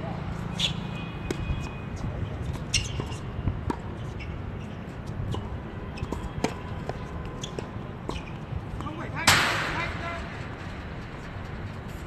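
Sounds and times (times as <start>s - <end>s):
tennis ball bouncing on hard court: 0.6s - 4.3s, 5.0s - 9.5s.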